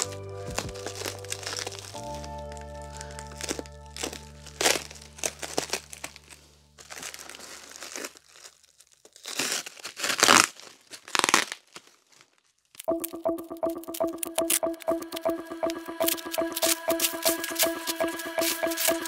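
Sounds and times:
background music chord: 0:00.0 - 0:06.8, 0:12.9 - 0:19.0
plastic wrapping crinkling: 0:00.0 - 0:12.9.

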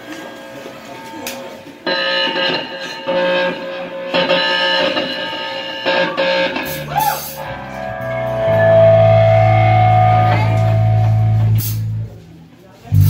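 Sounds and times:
electric guitar and bass chords: 0:01.9 - 0:13.0
drum and cymbal hits: 0:06.6 - 0:12.2.

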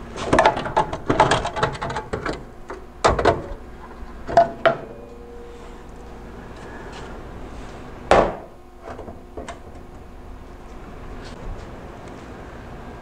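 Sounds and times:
sheet-metal rattles and scrapes: 0:00.1 - 0:02.4
sharp knocks: 0:08.1 - 0:09.5
metal thump: 0:08.1 - 0:09.6.

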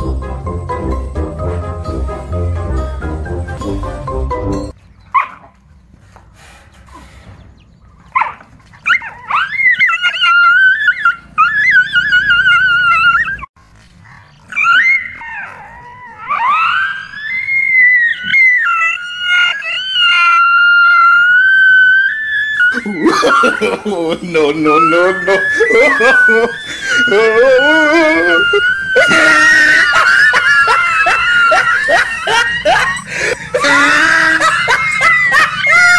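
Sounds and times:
dog howling and yelping: 0:08.2 - 0:13.5, 0:14.5 - 0:35.9.

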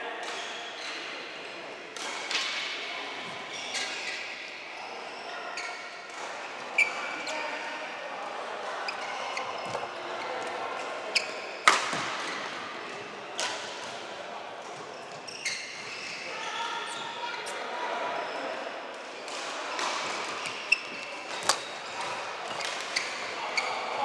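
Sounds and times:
rackets hitting shuttlecock: 0:11.6 - 0:12.3, 0:13.4 - 0:14.0, 0:21.2 - 0:23.2.

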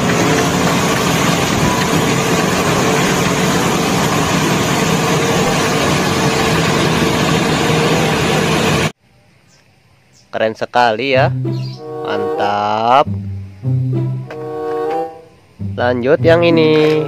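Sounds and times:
diesel engine running: 0:00.0 - 0:09.0.

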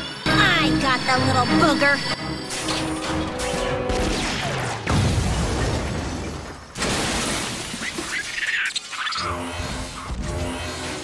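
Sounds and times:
cartoon crash shattering debris: 0:04.0 - 0:08.2.

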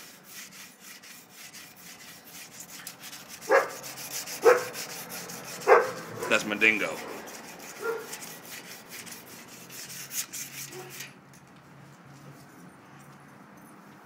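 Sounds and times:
foil scrubbing metal fender: 0:00.0 - 0:11.2.

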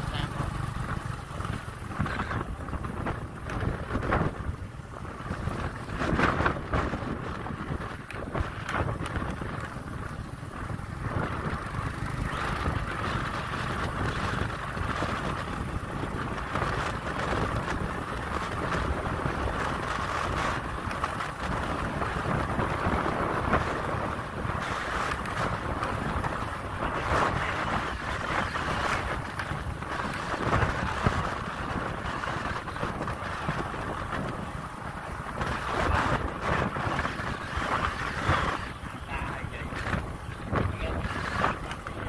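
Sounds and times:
motorbike running: 0:00.0 - 0:42.0
wind buffeting microphone: 0:00.0 - 0:42.0.

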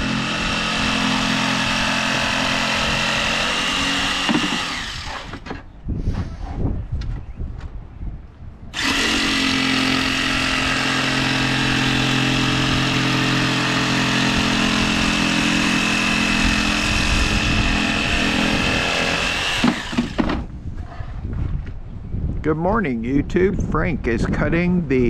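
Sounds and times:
jigsaw cutting with high whine: 0:00.0 - 0:05.5, 0:08.8 - 0:20.5.

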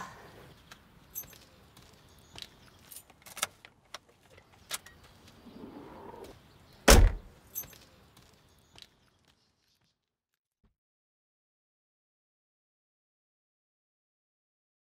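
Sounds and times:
tailgate slamming shut: 0:06.8 - 0:07.3.

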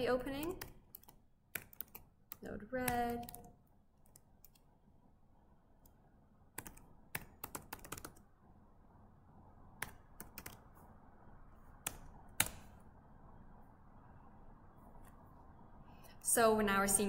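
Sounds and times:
typing on computer keyboard: 0:00.4 - 0:04.6, 0:06.6 - 0:08.2, 0:09.8 - 0:10.6.

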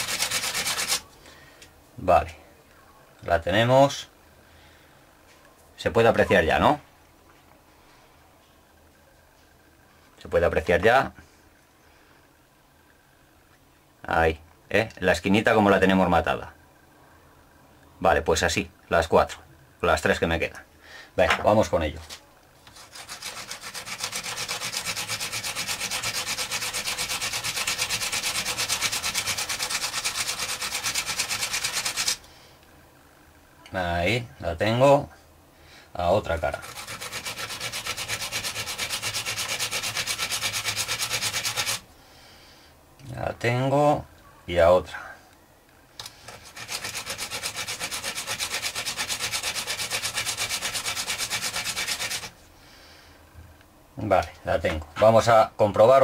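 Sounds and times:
brush scraping on grinding disc: 0:00.0 - 0:01.0, 0:22.6 - 0:32.2, 0:36.2 - 0:41.8, 0:46.2 - 0:52.4.

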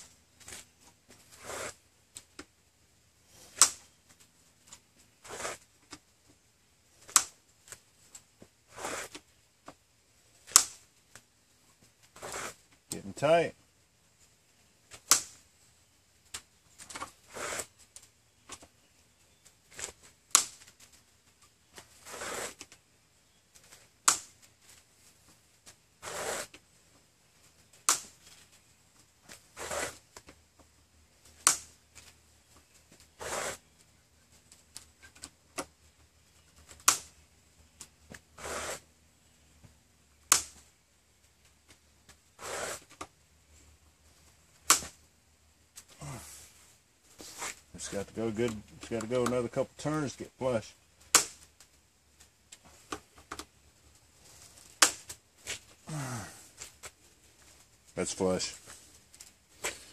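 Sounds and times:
screw rasping into wood: 0:12.2 - 0:12.6, 0:17.3 - 0:17.7, 0:22.0 - 0:22.6, 0:26.0 - 0:26.6, 0:29.6 - 0:30.0, 0:33.2 - 0:33.6, 0:38.4 - 0:38.8, 0:42.4 - 0:43.0.

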